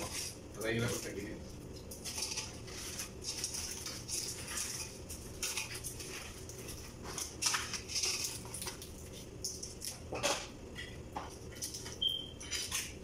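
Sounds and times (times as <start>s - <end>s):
crab shells cracking: 1.6s - 13.0s.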